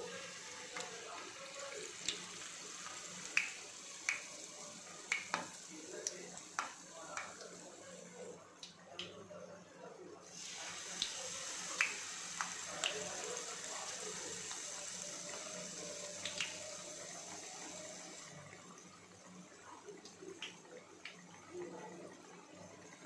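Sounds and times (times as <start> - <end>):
batter sizzling in hot oil: 0.0 - 8.4, 10.3 - 23.0
oil popping and crackling: 2.0 - 4.4, 11.8 - 13.1.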